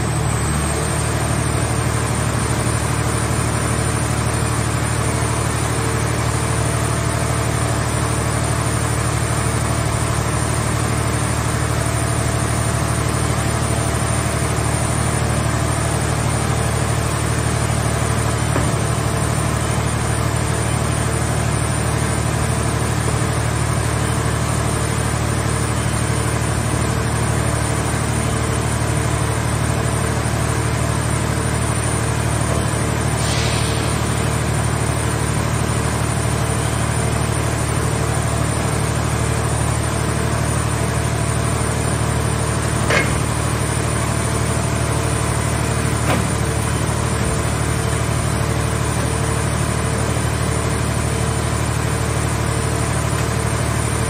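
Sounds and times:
hydraulic power unit humming: 0.0s - 54.0s
brief hiss: 33.2s - 34.1s
sharp metallic knocks: 42.9s - 43.4s.

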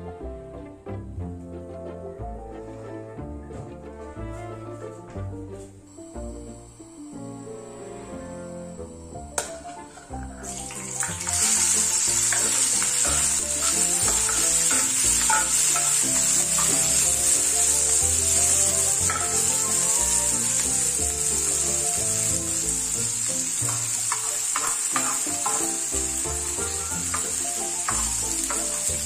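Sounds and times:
background music: 0.0s - 29.0s
vegetables sizzling in a pan: 5.9s - 29.0s.

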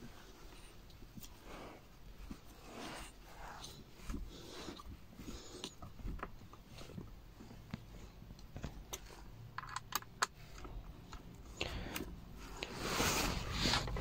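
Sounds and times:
plastic armrest clicks and scraping: 13.4s - 14.0s.

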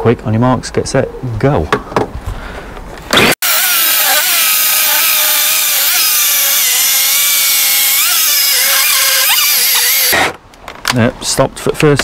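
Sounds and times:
electric chainsaw cutting log: 3.1s - 10.4s.

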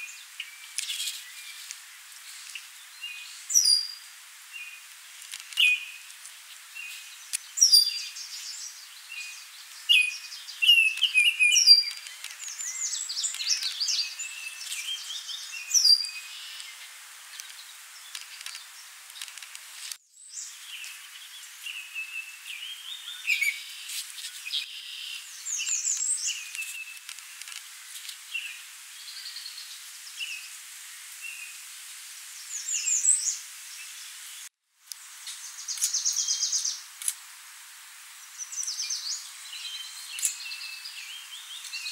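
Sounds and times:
songbirds chirping and singing: 5.5s - 19.4s, 20.2s - 27.5s, 38.3s - 41.9s.

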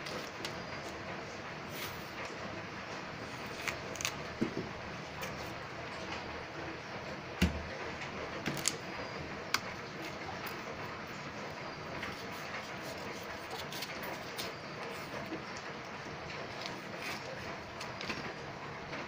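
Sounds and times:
knife peeling root skin: 3.2s - 4.3s, 12.0s - 15.6s, 16.4s - 18.0s.

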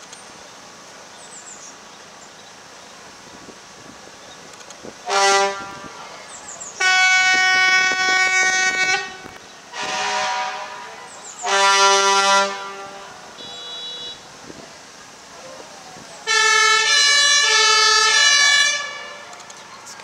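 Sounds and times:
fire engine air horn blasts: 5.0s - 6.1s, 6.8s - 14.3s, 16.2s - 19.4s.

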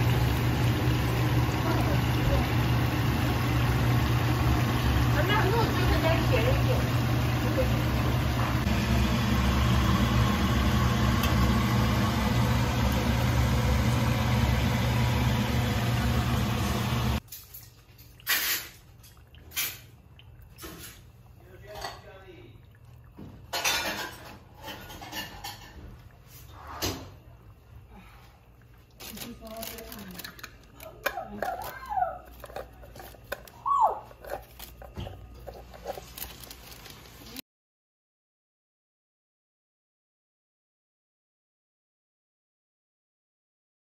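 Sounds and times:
shallots sizzling in oil: 0.0s - 17.2s
plastic bag rustling: 28.9s - 37.4s.

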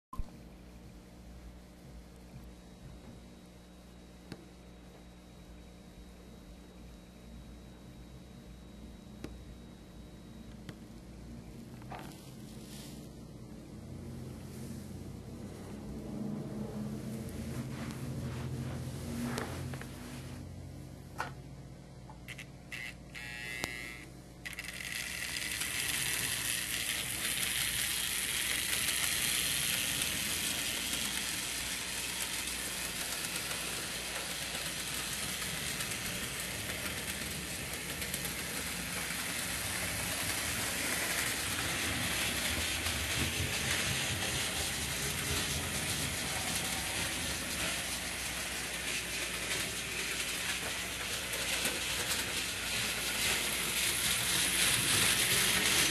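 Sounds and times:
model train motor whirring: 22.3s - 55.9s.

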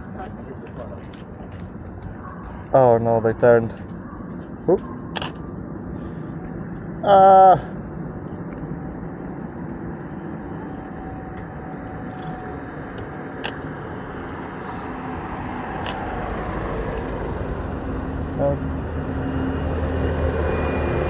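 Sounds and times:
street traffic noise: 0.0s - 21.0s.

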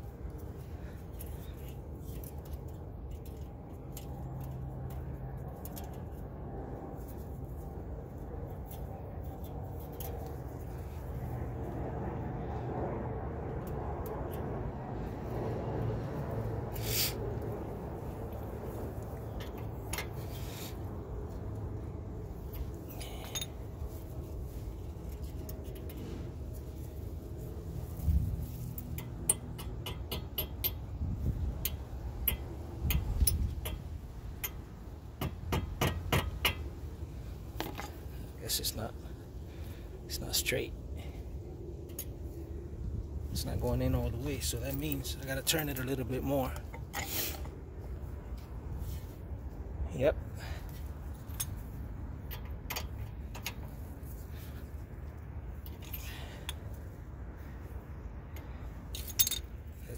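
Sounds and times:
steady low rumble: 0.0s - 59.9s
metallic clicks of a socket: 28.7s - 30.8s, 31.6s - 34.7s, 52.2s - 53.6s
hammer tapping metal pin: 29.0s - 30.8s.

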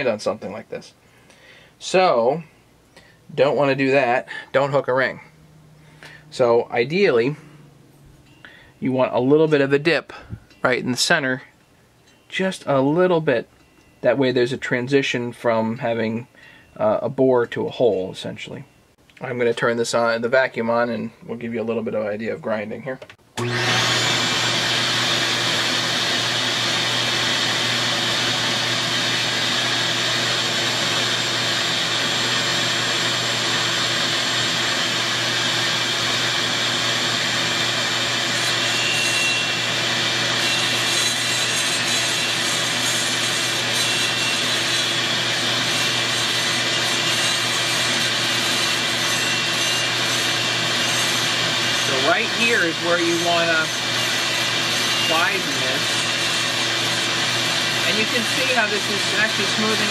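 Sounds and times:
shop vacuum running: 23.4s - 59.9s
rotary tool grinding metal: 28.2s - 59.9s.

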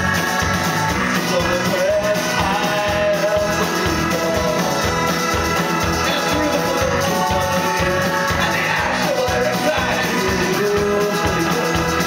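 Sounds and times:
acoustic and electric guitars: 0.0s - 12.0s
drums: 0.0s - 12.0s
keyboard: 0.0s - 12.0s
man singing lead vocal: 1.0s - 12.0s.

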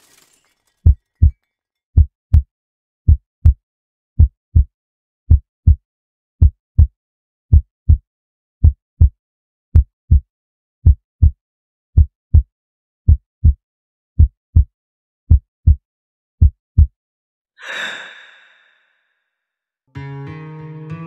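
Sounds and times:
heartbeat thumps: 3.1s - 3.6s, 4.2s - 4.7s, 6.4s - 6.9s, 7.5s - 8.0s, 8.6s - 9.2s, 9.8s - 10.2s, 10.8s - 11.4s, 12.0s - 12.5s, 13.1s - 13.6s, 14.2s - 14.7s, 16.4s - 16.9s.

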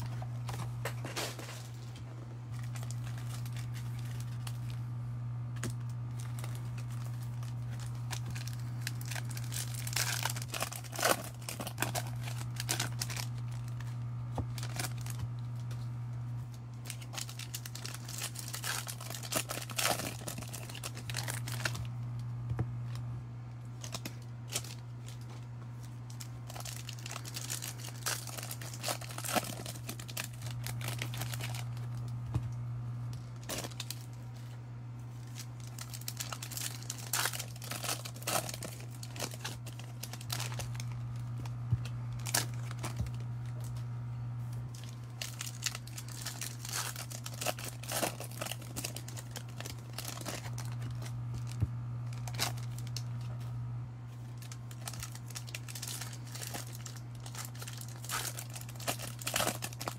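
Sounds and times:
cards being handled: 0.0s - 23.0s
foil wrappers tearing and crinkling: 0.0s - 23.1s, 23.7s - 43.9s, 44.5s - 59.9s
steady low hum: 0.0s - 59.9s.

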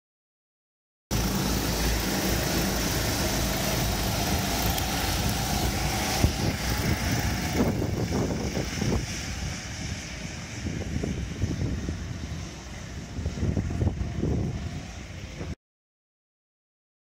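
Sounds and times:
kart engines droning: 1.1s - 15.6s.

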